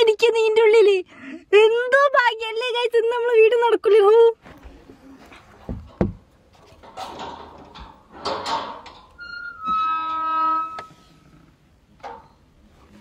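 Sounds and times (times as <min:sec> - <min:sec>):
rustling noise: 0:04.4 - 0:11.6.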